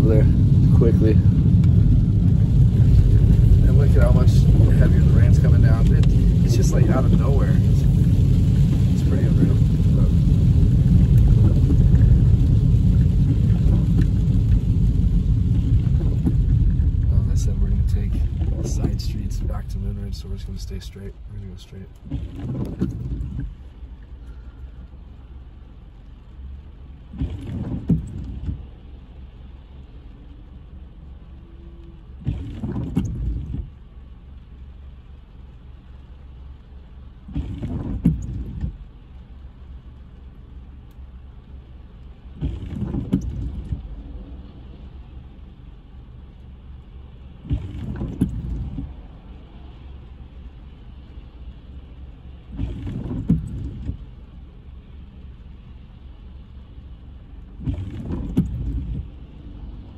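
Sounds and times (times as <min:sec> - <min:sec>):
car engine idling: 0:00.0 - 0:27.2
windshield wipers sweeping: 0:00.0 - 0:59.9.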